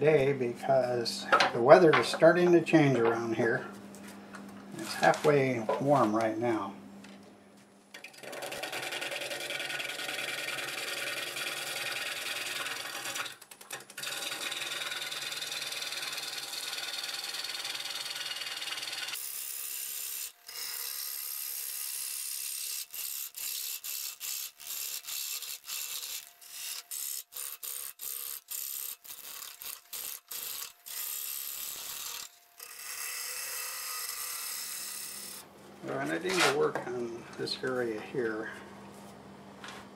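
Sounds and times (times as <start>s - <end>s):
gouge cutting wood on a lathe: 8.0s - 35.4s.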